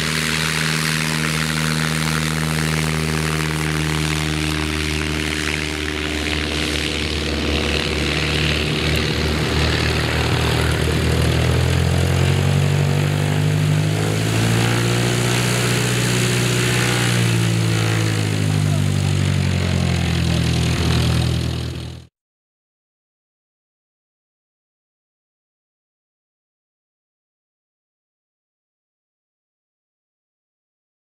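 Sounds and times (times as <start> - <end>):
propeller plane engine drone: 0.0 - 22.1.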